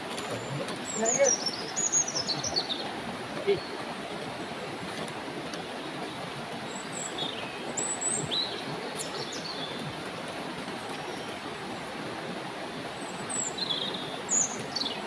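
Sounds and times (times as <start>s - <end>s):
bird chirping: 0.0s - 2.9s, 13.0s - 15.0s
stream flowing over rocks: 0.0s - 15.0s.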